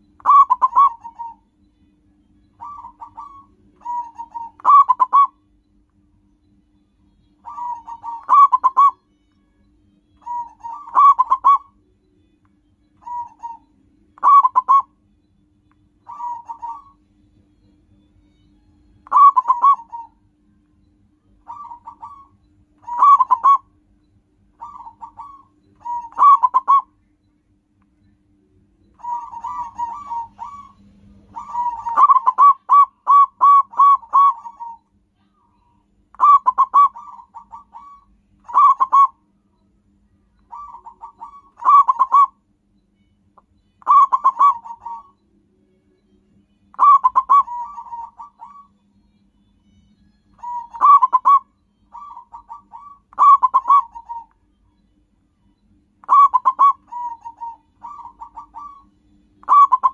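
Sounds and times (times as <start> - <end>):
dove cooing: 0.2 - 1.4, 2.6 - 5.4, 7.4 - 9.0, 10.2 - 11.8, 13.0 - 14.9, 16.1 - 17.0, 19.0 - 20.2, 21.5 - 23.7, 24.6 - 26.9, 29.0 - 34.8, 36.1 - 39.2, 40.5 - 42.4, 43.8 - 45.2, 46.7 - 48.8, 50.4 - 54.3, 56.0 - 59.9.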